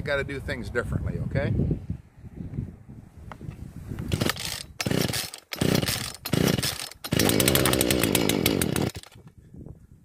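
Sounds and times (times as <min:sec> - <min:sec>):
chainsaw engine running: 0:04.1 - 0:09.2
starter cord yanks: 0:04.1 - 0:09.2.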